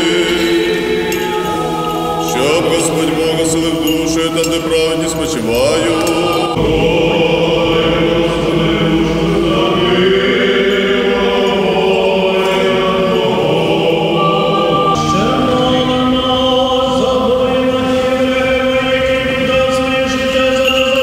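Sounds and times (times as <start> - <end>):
voices chanting long held notes: 0.0 - 21.0.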